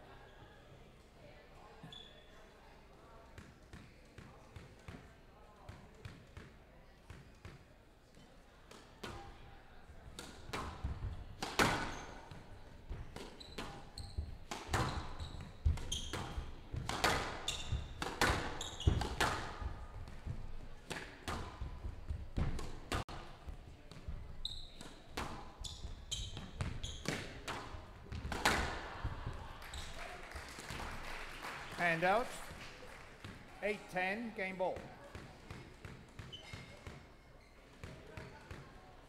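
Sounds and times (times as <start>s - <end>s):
court shoes squeaking: 1.8s - 2.5s, 10.2s - 30.2s, 34.7s - 38.8s
squash ball hitting racket and walls: 3.4s - 7.8s, 8.6s - 30.0s, 34.8s - 37.1s, 37.7s - 38.9s.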